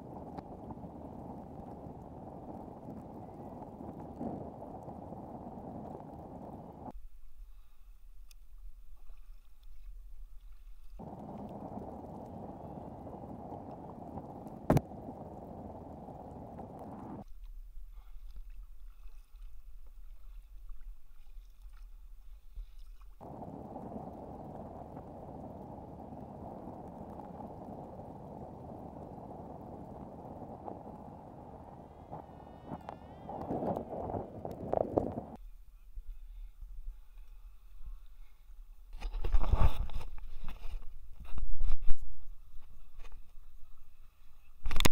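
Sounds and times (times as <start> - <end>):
low hum: 0.0 - 7.5, 11.0 - 17.9, 23.2 - 37.8
muffled water and wind: 0.0 - 44.9.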